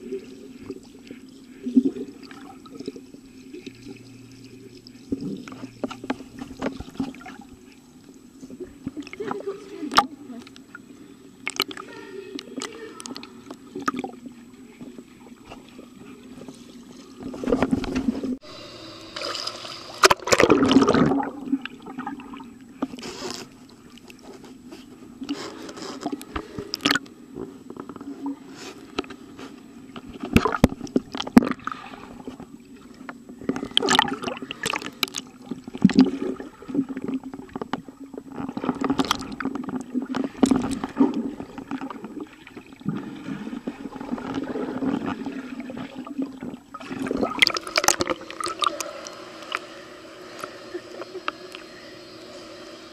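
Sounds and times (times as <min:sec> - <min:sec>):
water bubbling: 0:00.0 - 0:22.9, 0:25.2 - 0:27.4, 0:30.1 - 0:52.9
muffled underwater hum: 0:00.0 - 0:52.9
underwater clicks: 0:11.4 - 0:14.1, 0:26.0 - 0:28.0
rushes of water: 0:19.1 - 0:24.2, 0:30.1 - 0:52.9.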